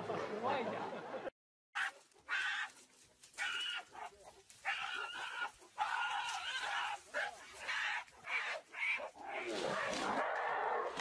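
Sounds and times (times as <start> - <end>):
gorillas screaming: 4.7 - 9.0.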